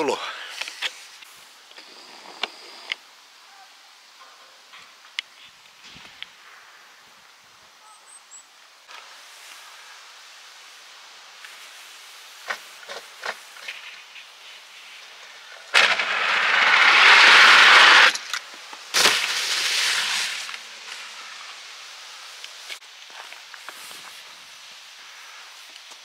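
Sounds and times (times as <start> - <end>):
skis hissing down track: 0.0 - 7.8, 8.6 - 26.0
skis sliding hiss: 0.0 - 26.0
ski landing thud: 15.7 - 21.2.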